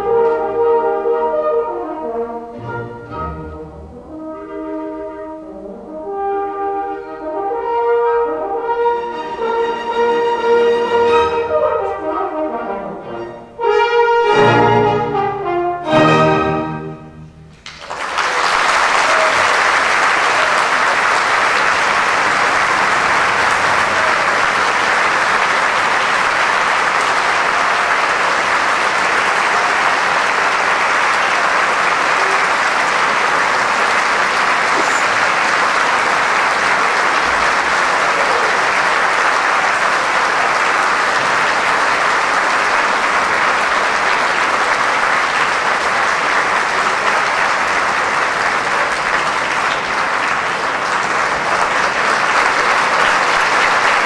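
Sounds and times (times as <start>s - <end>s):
audience applauding: 17.5s - 54.0s.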